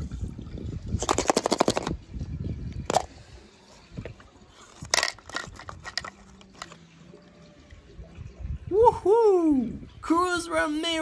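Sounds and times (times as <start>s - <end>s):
plastic eggs clicking and rattling: 1.0s - 2.0s, 4.7s - 6.8s.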